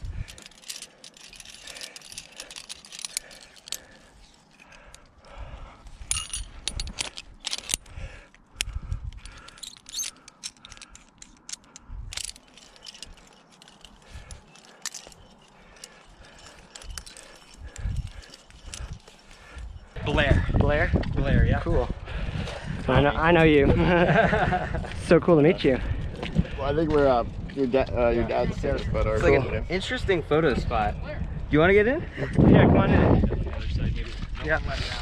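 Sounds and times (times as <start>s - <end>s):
carabiners clinking: 0.0s - 20.0s.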